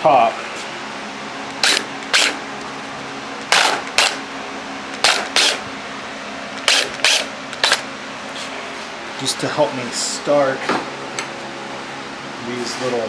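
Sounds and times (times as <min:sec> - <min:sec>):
cordless drill bursts into wood: 0:01.6 - 0:02.4, 0:05.0 - 0:05.6, 0:06.6 - 0:07.8.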